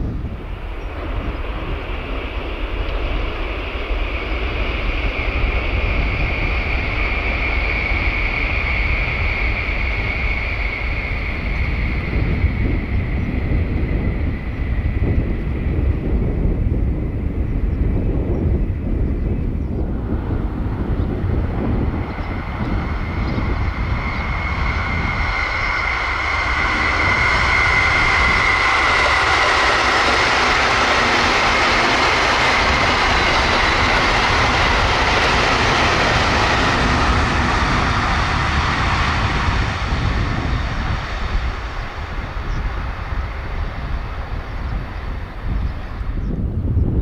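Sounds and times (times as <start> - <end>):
train passing at high speed: 0.0 - 47.0
thin high whine: 20.3 - 46.1.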